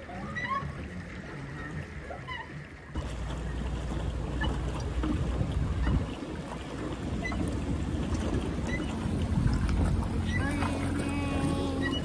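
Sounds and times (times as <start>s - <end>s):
water moving around boat: 0.0s - 12.0s
wind rumbling on microphone: 2.9s - 12.0s.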